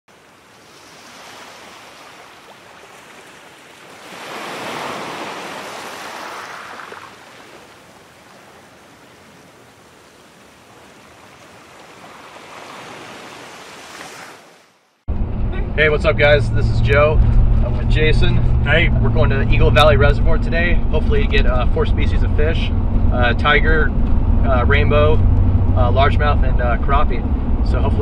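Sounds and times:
ocean waves washing: 0.1s - 28.0s.

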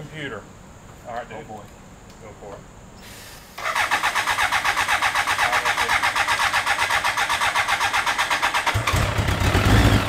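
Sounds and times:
electric starter cranking engine: 3.6s - 10.0s.

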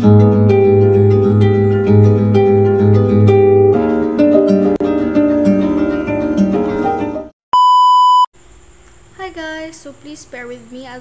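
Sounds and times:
electronic beep: 7.6s - 8.3s.

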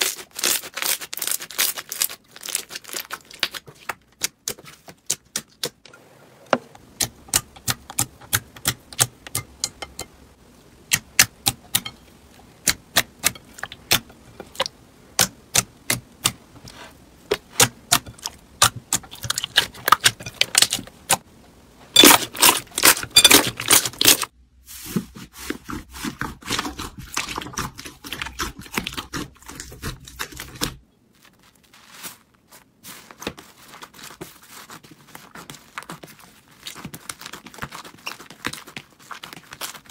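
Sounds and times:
foam bead slime crackling: 0.0s - 4.9s, 27.4s - 39.9s.

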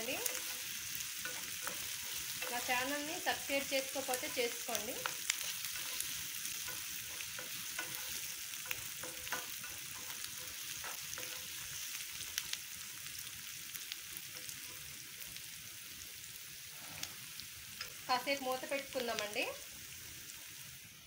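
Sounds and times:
onions sizzling in oil: 0.0s - 21.0s
wooden spatula scraping pan: 0.2s - 11.6s.

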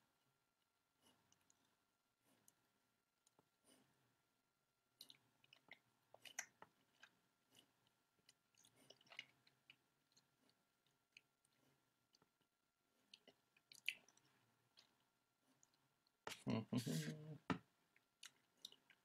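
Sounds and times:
wet mouth clicks and smacks: 5.0s - 7.1s.

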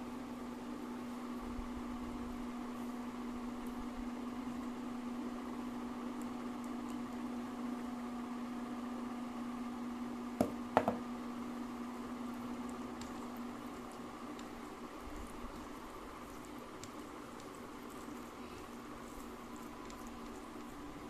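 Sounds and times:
steady low hum: 0.0s - 21.0s
glass bowl knocking on table: 10.4s - 11.0s.

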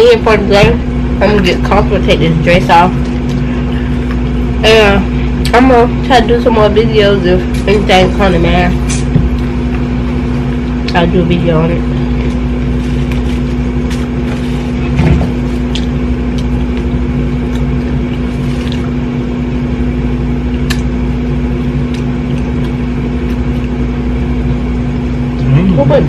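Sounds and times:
low machine hum: 0.0s - 26.0s
people eating crunchy food: 3.0s - 4.6s, 11.9s - 25.8s.

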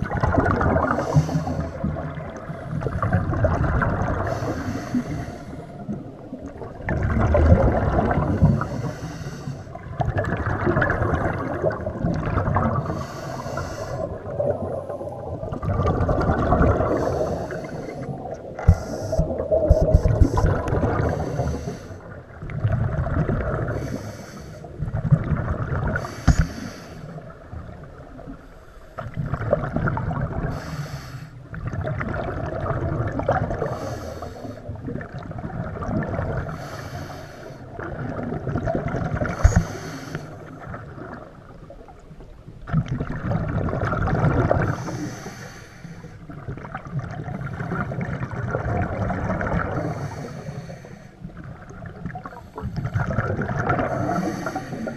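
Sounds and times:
exhaust bubbles: 0.0s - 4.4s, 5.9s - 8.7s, 9.8s - 13.0s, 14.0s - 21.5s, 22.4s - 23.8s, 42.7s - 44.8s, 51.4s - 54.9s
regulator breathing hiss: 8.6s - 9.7s, 12.9s - 14.1s, 16.9s - 18.1s, 21.1s - 22.1s, 23.8s - 24.7s, 26.0s - 27.2s, 30.5s - 31.4s, 36.6s - 37.6s, 39.4s - 40.4s, 44.7s - 46.2s, 49.9s - 51.2s.

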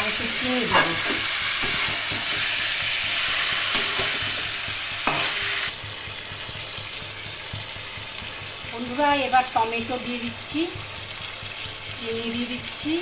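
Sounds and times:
chicken and onions sizzling in oil: 0.0s - 13.0s
spatula scraping metal pan: 0.1s - 5.7s.

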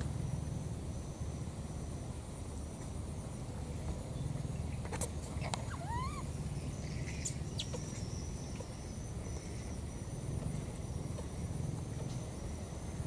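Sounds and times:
rising animal call: 5.4s - 6.4s.

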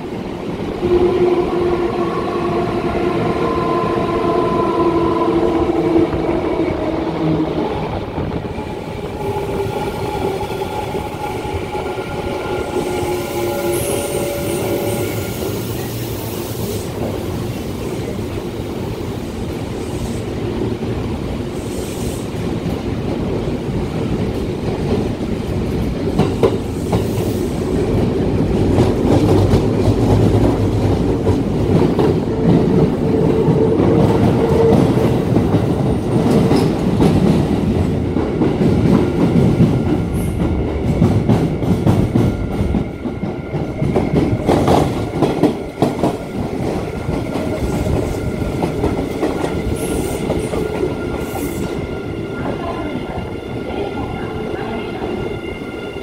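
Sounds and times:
train wheel and rail rumble: 0.0s - 56.0s.

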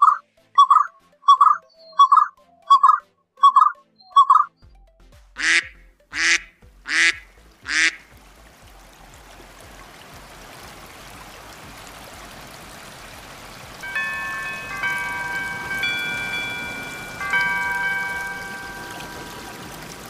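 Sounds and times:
duck quacking: 0.0s - 4.5s, 5.4s - 8.1s
steady hiss: 8.0s - 20.0s.

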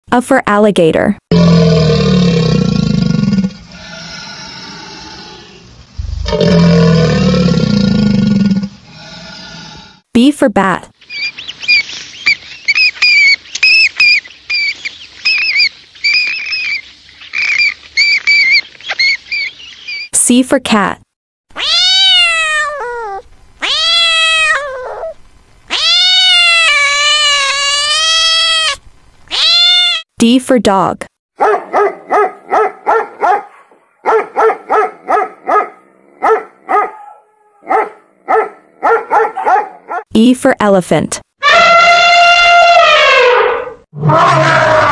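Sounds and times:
dog barking: 31.4s - 40.0s.

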